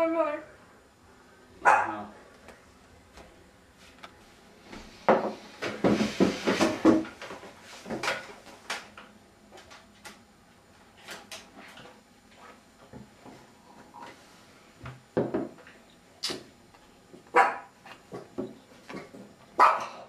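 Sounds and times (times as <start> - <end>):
chair scraping on floor: 4.7 - 8.1.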